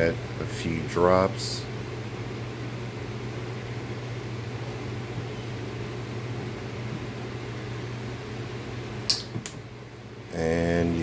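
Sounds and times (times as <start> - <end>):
appliance humming: 0.0 - 11.0.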